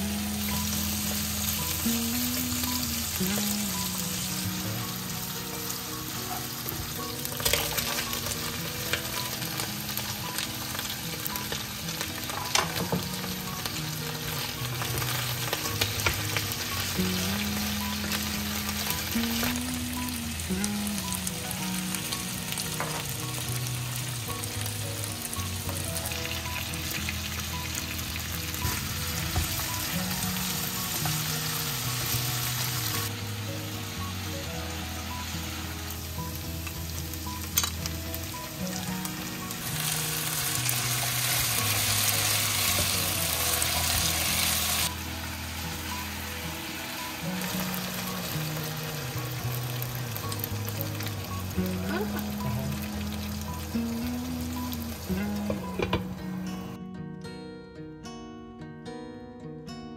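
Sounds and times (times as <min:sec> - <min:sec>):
food sizzling in frying pan: 0:00.0 - 0:56.5
background music: 0:00.0 - 0:59.9.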